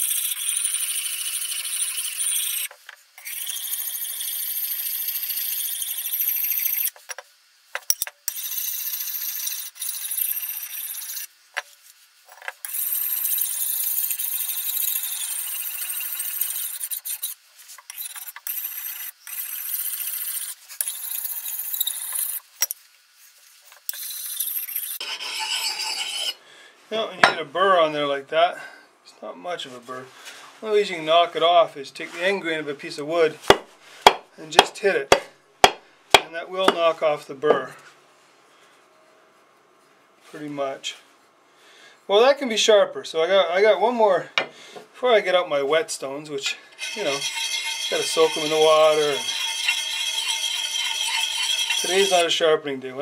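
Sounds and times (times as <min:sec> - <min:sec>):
sharpening stone scraping metal: 0:00.0 - 0:07.0, 0:07.9 - 0:11.3, 0:12.6 - 0:22.8, 0:23.9 - 0:26.4, 0:46.8 - 0:52.3.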